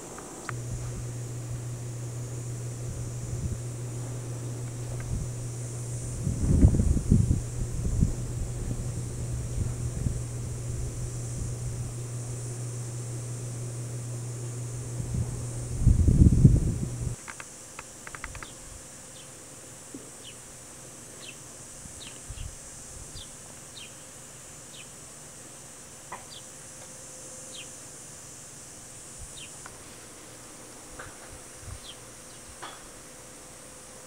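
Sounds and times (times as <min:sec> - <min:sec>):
high-pitched insect drone: 0:15.9 - 0:29.7
faint clicks: 0:17.2 - 0:18.6.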